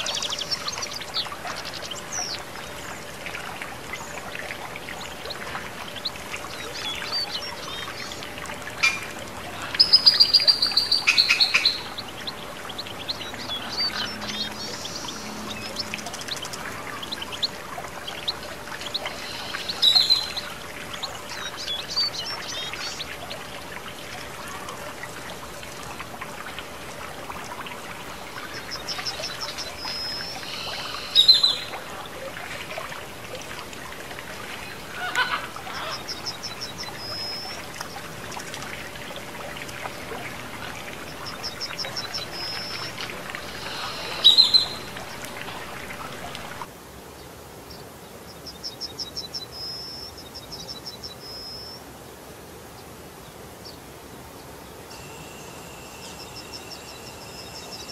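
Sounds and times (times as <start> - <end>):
fountain water trickling: 0.0 - 57.9
small bird trilling song: 18.1 - 20.4, 28.7 - 31.7, 41.2 - 44.9.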